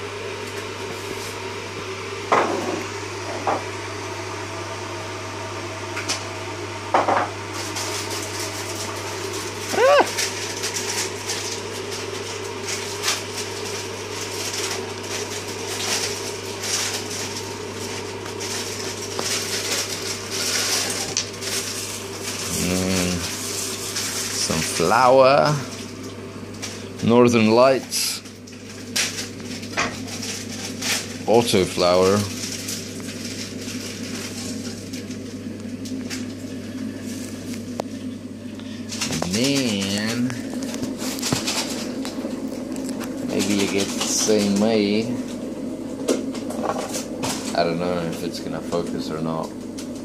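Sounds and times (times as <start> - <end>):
low steady hum: 14.4 - 50.0.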